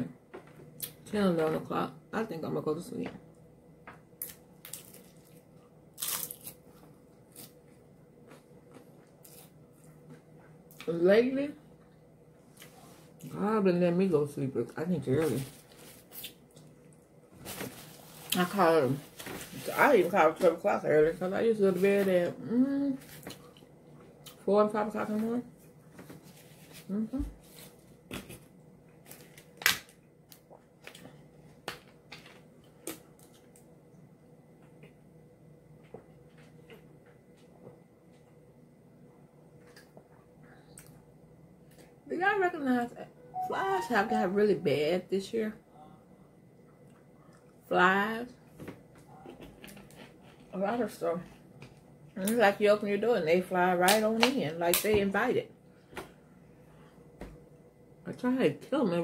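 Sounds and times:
crunchy taco chewing: 4.2s - 10.1s.

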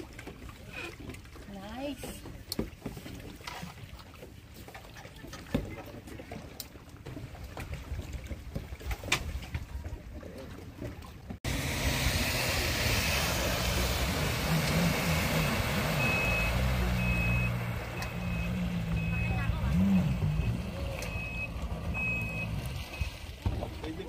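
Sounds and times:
kayak paddling water noise: 0.0s - 24.0s
vehicle engine running: 11.4s - 23.0s
reversing alarm beeping: 15.1s - 23.1s.

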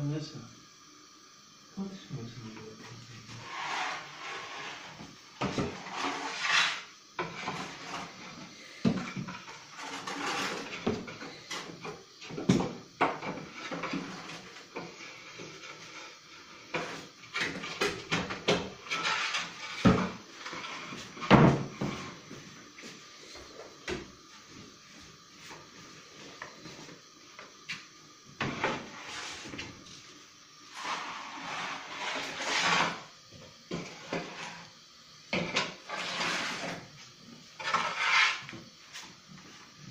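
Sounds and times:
baking trays clattering and scraping: 3.3s - 22.2s, 28.4s - 29.9s, 30.7s - 33.1s, 33.7s - 34.6s, 35.3s - 37.0s, 37.6s - 39.0s.

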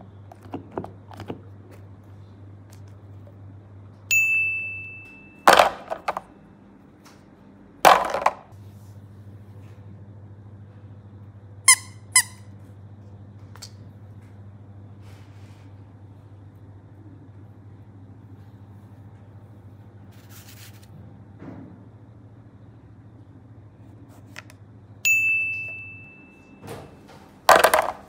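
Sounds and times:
steady low hum: 0.0s - 28.0s
toy ringing ding: 4.1s - 5.6s, 25.0s - 26.6s
toy squeaks: 11.7s - 12.4s.

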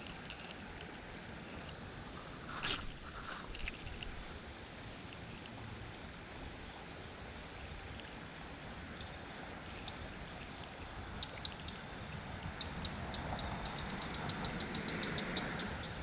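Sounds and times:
low outdoor rumble: 0.0s - 16.0s
faint high ticks: 7.6s - 16.0s.

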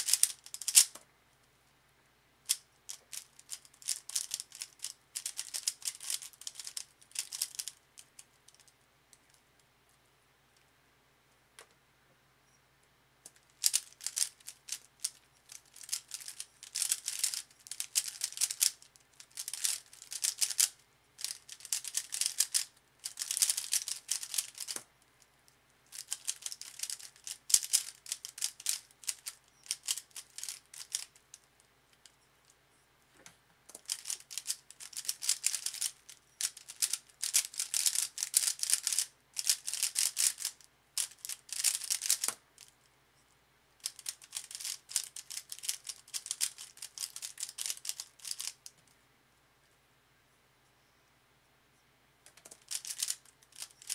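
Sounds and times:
puzzle cube rattling clatter: 0.0s - 0.9s, 2.5s - 8.7s, 13.3s - 24.8s, 25.9s - 31.4s, 33.8s - 42.7s, 43.8s - 48.6s, 52.3s - 53.9s.

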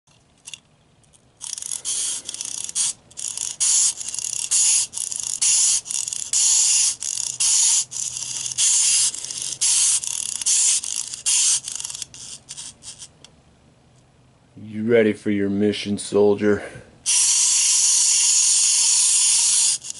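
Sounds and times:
wind-up toy ratchet clicking: 1.4s - 13.1s, 17.1s - 19.9s.

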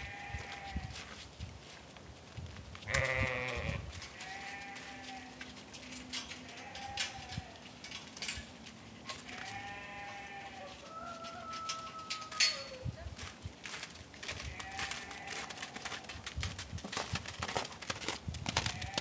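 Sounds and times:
lamb bleating: 0.0s - 0.8s, 2.9s - 5.4s, 9.3s - 10.7s, 14.4s - 15.7s.

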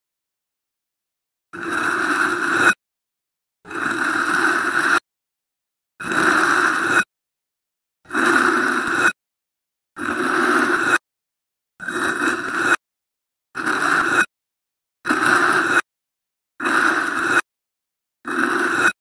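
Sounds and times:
blade scraping cuts: 1.6s - 2.8s, 3.7s - 5.0s, 6.0s - 7.1s, 8.1s - 9.2s, 10.0s - 11.0s, 11.8s - 12.8s, 13.6s - 14.3s, 15.1s - 15.9s, 16.6s - 17.5s, 18.3s - 19.0s.

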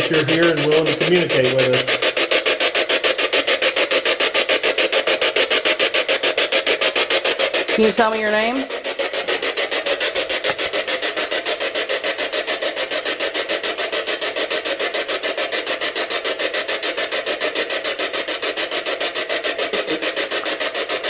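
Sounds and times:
pulsing radio static: 0.0s - 2.2s, 4.9s - 11.8s, 19.4s - 21.0s.

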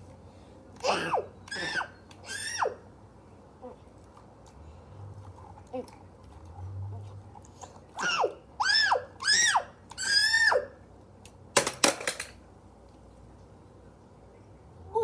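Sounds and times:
child squealing: 0.8s - 2.8s, 8.0s - 10.8s.

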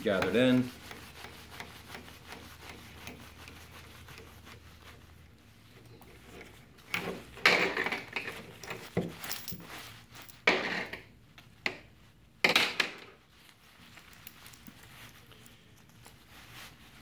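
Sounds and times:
fabric rustling and crinkling: 8.2s - 10.4s, 13.2s - 17.0s.

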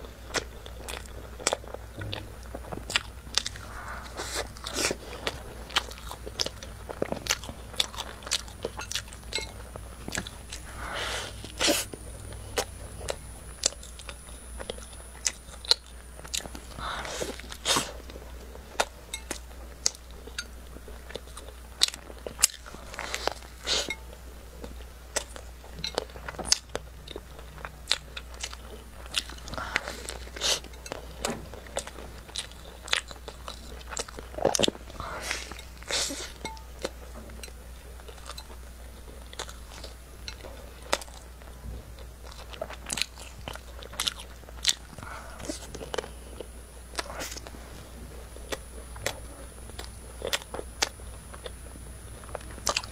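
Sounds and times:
biting and chewing crunches: 0.0s - 52.9s
mouth sounds: 2.0s - 2.5s.

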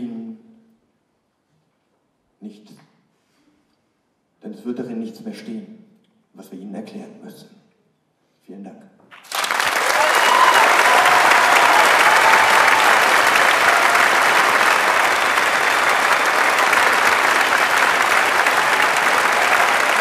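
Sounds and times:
audience applauding: 9.2s - 20.0s.

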